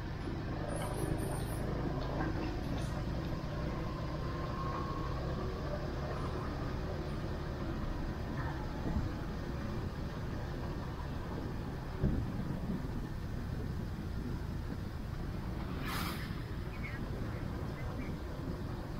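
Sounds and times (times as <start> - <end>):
road noise: 0.0 - 18.9
wind noise: 3.8 - 18.9.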